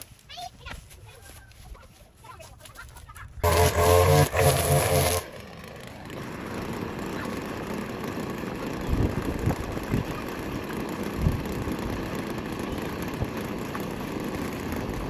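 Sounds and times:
string trimmer engine revving: 0:03.4 - 0:15.0.

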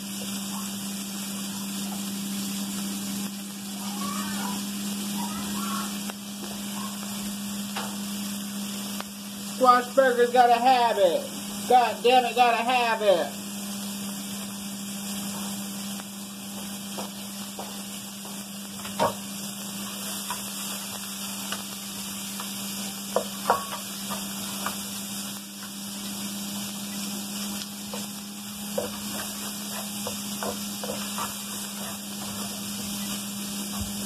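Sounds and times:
bacon and onions sizzling: 0:00.0 - 0:34.0
utensil scraping a pan: 0:28.7 - 0:34.0.

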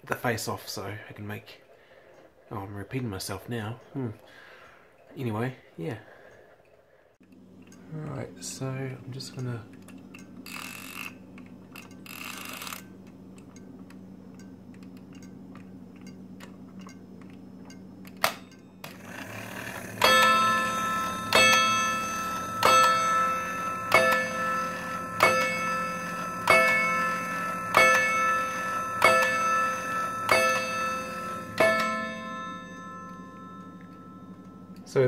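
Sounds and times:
clock movement clicks: 0:09.1 - 0:34.9
clock chime rods struck: 0:17.7 - 0:35.0.

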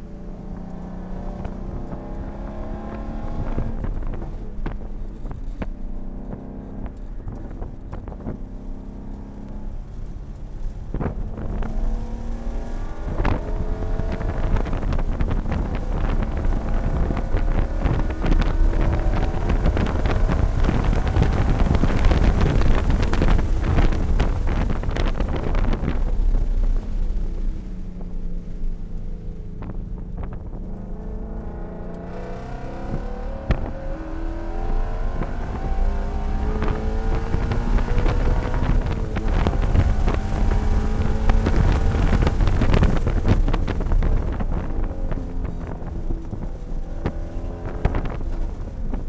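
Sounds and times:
car engine at full throttle: 0:00.0 - 0:49.0
wind and road noise: 0:00.0 - 0:49.0.

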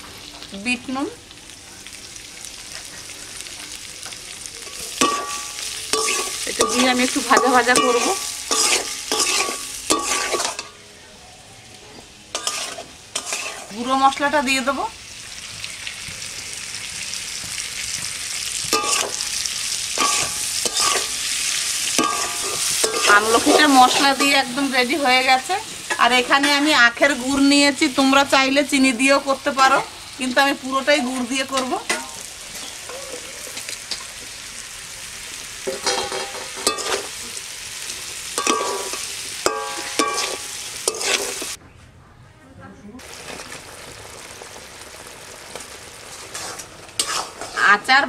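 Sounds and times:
spices sizzling in oil: 0:00.0 - 0:41.6, 0:43.0 - 0:48.0
metal spatula scraping pan: 0:05.0 - 0:10.8, 0:12.4 - 0:13.9, 0:20.0 - 0:24.6, 0:38.4 - 0:41.6, 0:46.1 - 0:47.8.

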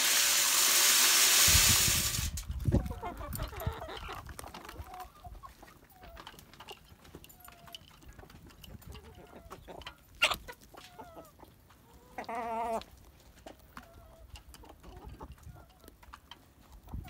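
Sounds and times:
chickens clucking: 0:02.5 - 0:17.0
chicken squawk: 0:02.7 - 0:04.2, 0:09.0 - 0:12.8.

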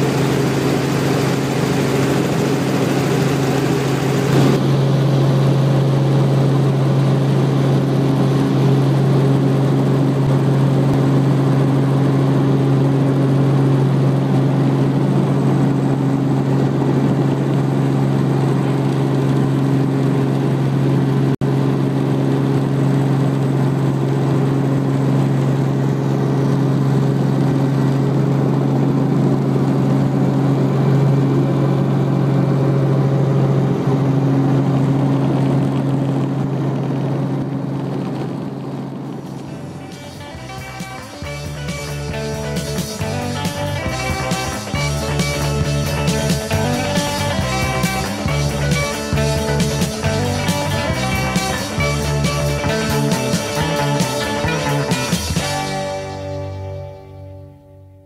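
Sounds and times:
helicopter engine and rotor droning: 0:00.0 - 0:57.9.

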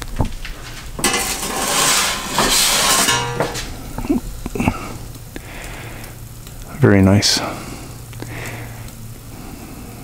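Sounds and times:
metal peel scraping on stone: 0:01.0 - 0:03.8.

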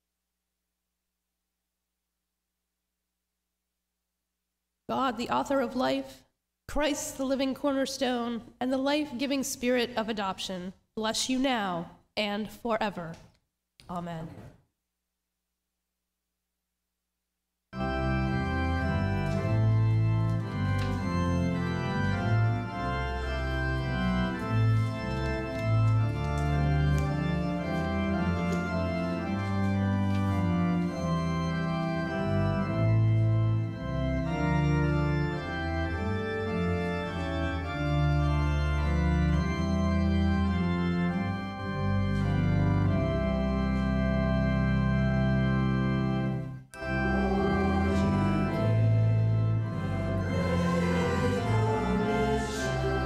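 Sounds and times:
church organ chords: 0:17.8 - 0:53.0.

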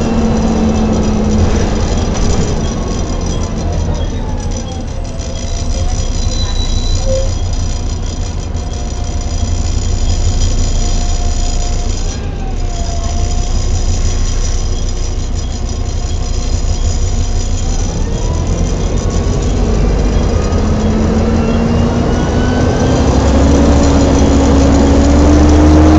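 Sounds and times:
bus engine rumble: 0:00.0 - 0:25.9
gearbox whine: 0:00.0 - 0:25.9.

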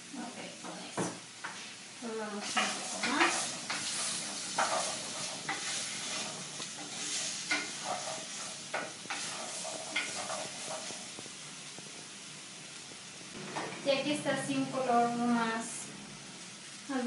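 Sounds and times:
vegetables sizzling in oil: 0:00.0 - 0:17.0
wooden spoon scraping clay pot: 0:02.4 - 0:11.2.

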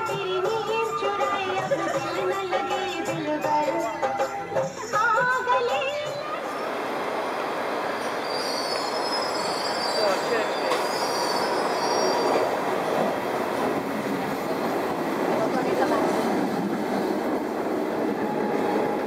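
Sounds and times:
train rolling rumble: 0:06.0 - 0:19.0
high metallic squeal: 0:08.0 - 0:12.5.

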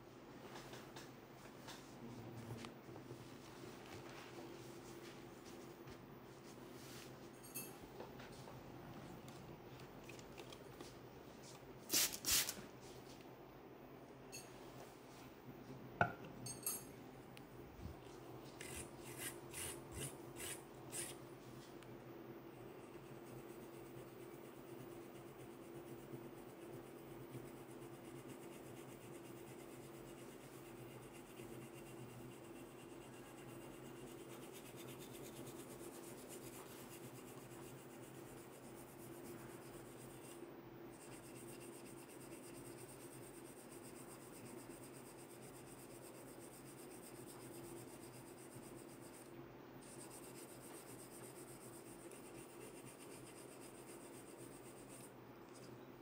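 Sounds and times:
steady low hum: 0:12.7 - 0:56.0
comb scratching hair and scalp: 0:18.5 - 0:21.2, 0:22.8 - 0:40.4, 0:41.0 - 0:55.1.

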